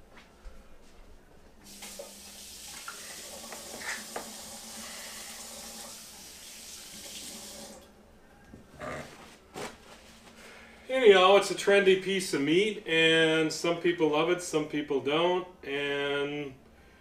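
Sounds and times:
faucet running into sink: 1.7s - 7.9s.

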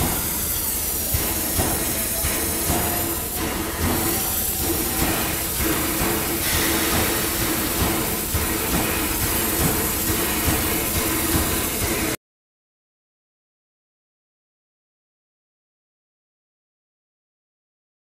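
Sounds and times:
steam locomotive hissing: 0.0s - 12.2s.

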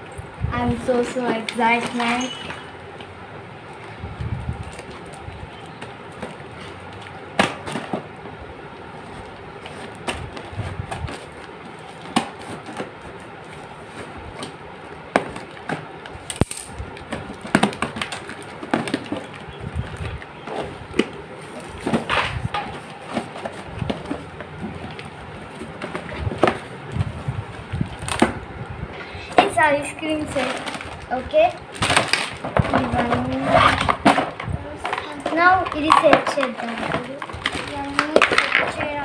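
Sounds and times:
tape and cardboard tearing: 9.0s - 28.4s, 29.4s - 39.0s.

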